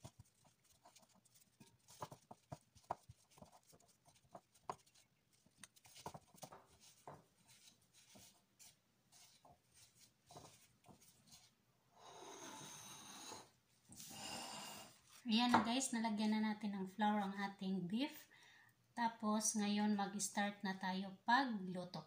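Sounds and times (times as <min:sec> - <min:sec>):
gloved hands rubbing: 0:00.0 - 0:11.6.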